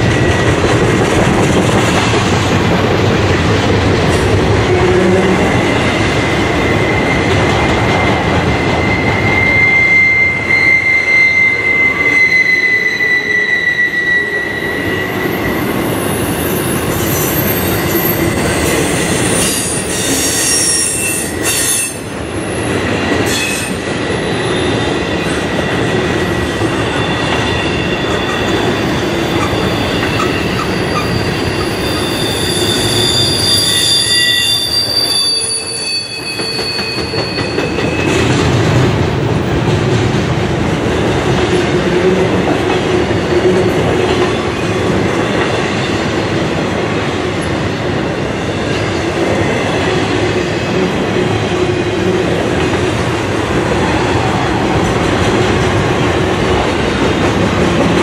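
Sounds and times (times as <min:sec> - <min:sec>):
train wheels rumbling on rail: 0:00.0 - 0:58.0
high-pitched wheel squeal: 0:04.8 - 0:22.7, 0:26.8 - 0:38.2.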